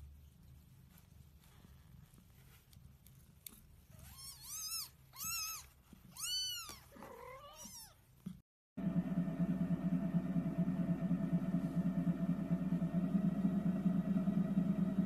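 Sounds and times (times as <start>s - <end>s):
cat meowing: 4.0s - 8.0s
low steady rumble: 8.8s - 15.0s.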